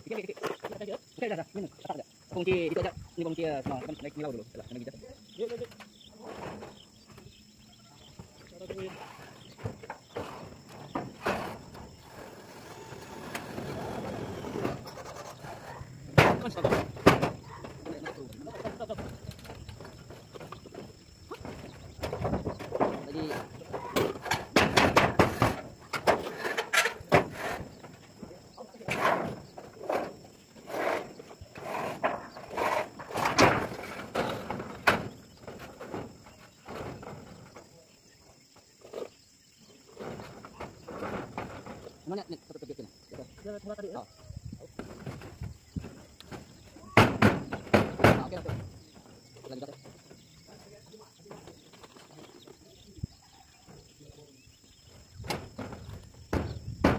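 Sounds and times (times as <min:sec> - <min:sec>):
knocks on steel roofing sheets: 0:08.7 - 0:14.8, 0:15.4 - 0:28.2, 0:28.9 - 0:37.6, 0:44.8 - 0:49.2, 0:55.2 - 0:56.9
metal sheet scraping: 0:08.9 - 0:17.8
knocks on corrugated steel roof: 0:16.1 - 0:17.8, 0:21.5 - 0:26.2, 0:44.8 - 0:48.8, 0:55.2 - 0:56.9.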